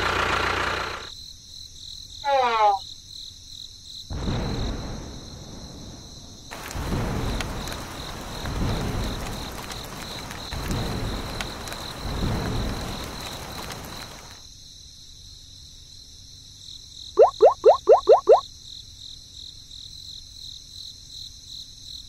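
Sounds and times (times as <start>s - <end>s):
crickets chirping: 1.0s - 22.0s
thunder rolling: 4.1s - 14.3s
steady rain hiss: 4.1s - 14.7s.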